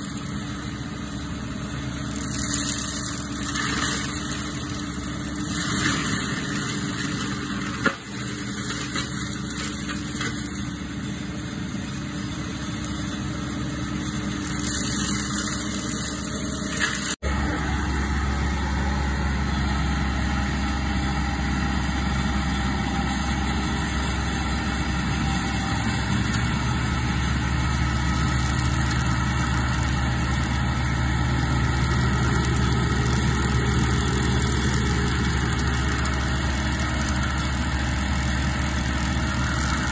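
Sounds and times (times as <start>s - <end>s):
mulcher engine running: 0.0s - 39.9s
mulching rotor cutting brush: 0.0s - 39.9s.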